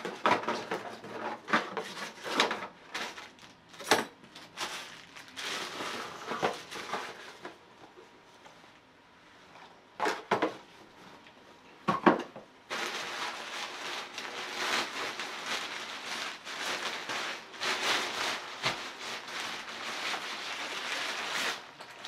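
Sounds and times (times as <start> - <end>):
thin fabric crinkling and rustling: 1.8 - 7.4, 12.7 - 22.0.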